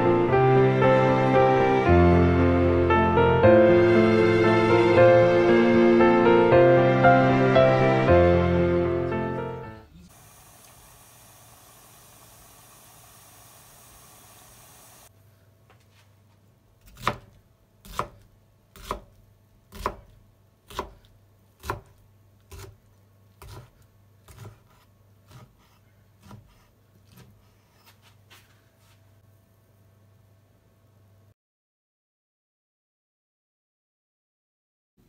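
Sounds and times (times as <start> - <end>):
water boiling in a pot: 10.1 - 15.1
knife chopping on cutting board: 16.8 - 22.8, 23.4 - 28.0.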